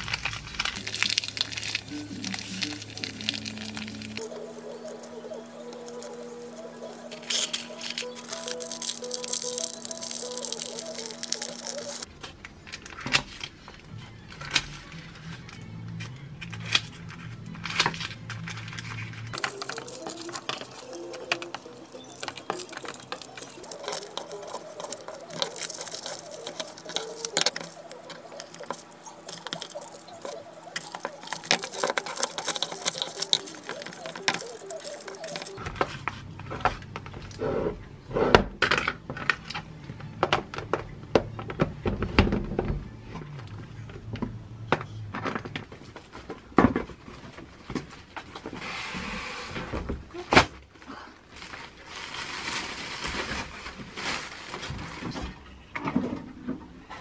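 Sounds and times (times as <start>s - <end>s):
packaging rustling: 0.0s - 12.1s, 16.7s - 36.0s, 51.3s - 55.4s
plastic containers clicking and tapping: 19.4s - 35.6s.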